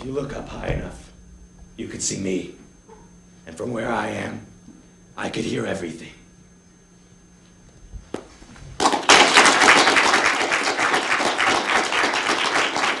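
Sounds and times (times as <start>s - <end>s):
audience applause: 8.8s - 13.0s.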